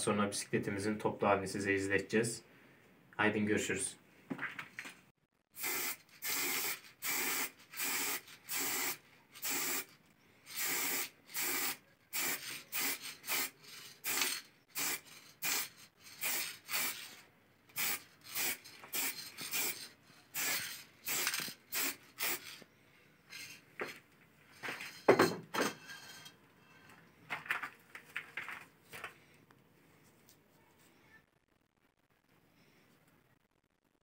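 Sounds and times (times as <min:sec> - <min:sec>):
spray paint can hissing: 0:05.6 - 0:09.9, 0:10.5 - 0:22.6.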